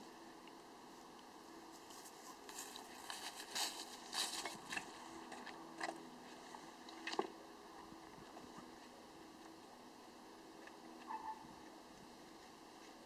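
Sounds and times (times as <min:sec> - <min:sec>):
rustling: 0:01.7 - 0:05.2.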